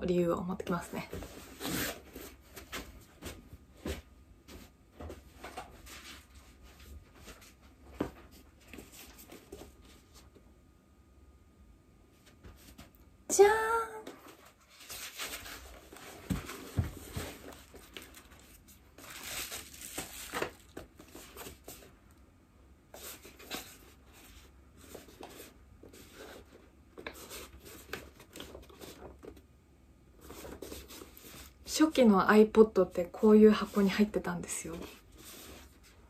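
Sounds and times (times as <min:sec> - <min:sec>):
packaging rustling and tearing: 0:14.8 - 0:21.9.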